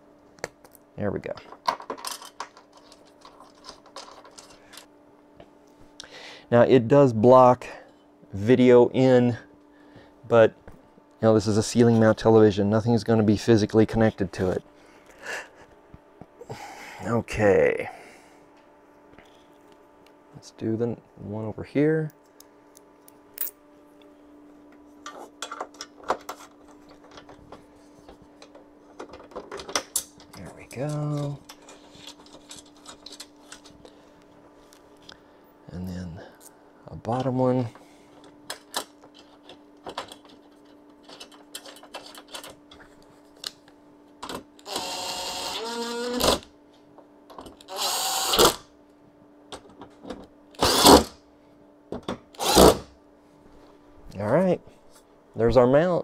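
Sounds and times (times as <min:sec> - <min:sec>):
bolts and parts clicking: 0:38.5 - 0:42.8
cordless drill driving bolts: 0:44.6 - 0:46.4, 0:47.7 - 0:48.6, 0:50.6 - 0:51.1, 0:52.4 - 0:52.9.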